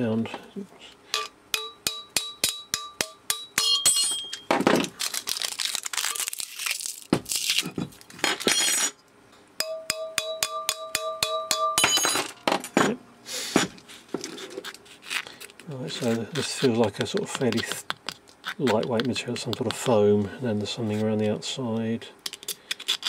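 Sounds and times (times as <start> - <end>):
metal parts clinking and ringing: 1.2 - 4.5, 8.2 - 9.0, 9.6 - 13.0.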